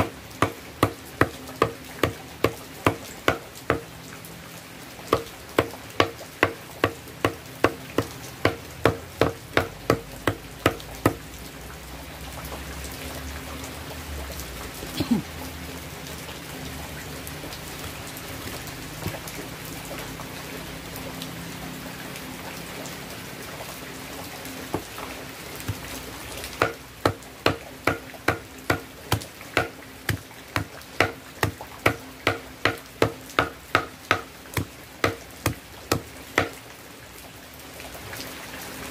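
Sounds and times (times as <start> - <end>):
machete chopping coconut husk: 0.0 - 3.9, 26.6 - 36.5.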